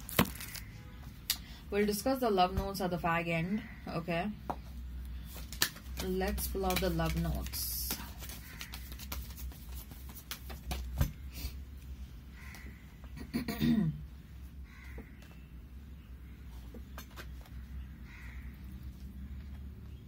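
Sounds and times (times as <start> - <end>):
cards shuffled and dealt: 5.2 - 11.2.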